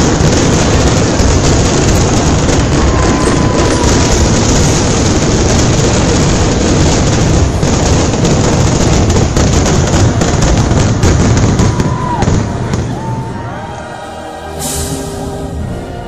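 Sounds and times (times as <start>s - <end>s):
fireworks bangs and crackles: 0.0s - 13.9s.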